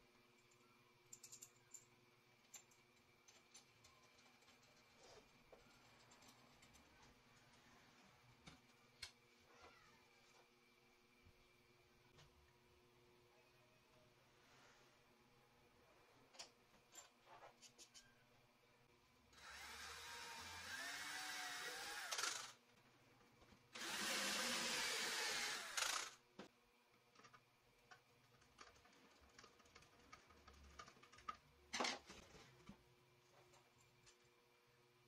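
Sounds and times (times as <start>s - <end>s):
cordless drill boring through wood: 19.4s - 22.6s, 23.8s - 26.2s.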